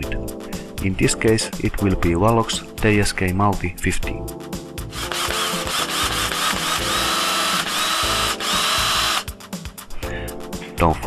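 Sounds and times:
power drill whining: 4.9s - 9.4s.

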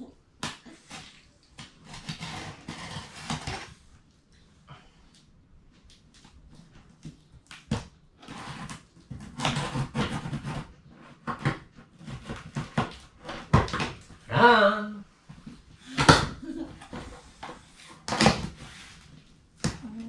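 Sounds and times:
knife slitting packing tape: 8.2s - 10.7s.

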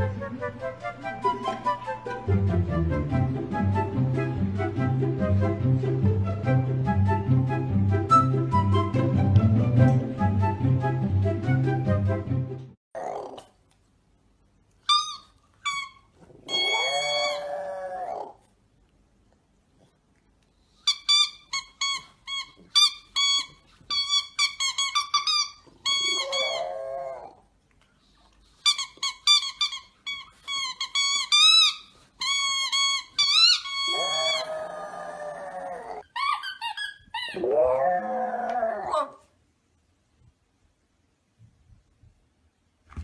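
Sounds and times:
dog whining howls: 16.4s - 18.4s, 26.0s - 27.4s, 33.4s - 36.4s, 37.1s - 39.2s
rubber ball squeaking: 20.9s - 26.6s, 28.6s - 34.4s, 36.1s - 37.4s.

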